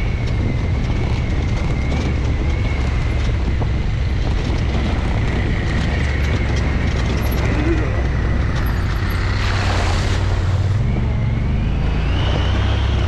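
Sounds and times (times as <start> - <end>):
utv engine rumble with whine: 0.0 - 13.0
wind on microphone: 0.0 - 13.0.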